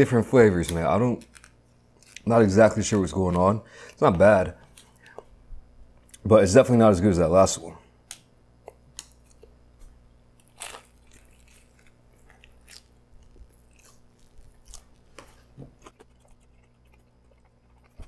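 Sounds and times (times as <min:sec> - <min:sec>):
small crunching: 0:00.5 - 0:05.2, 0:08.1 - 0:18.0
person chewing food: 0:08.6 - 0:18.0.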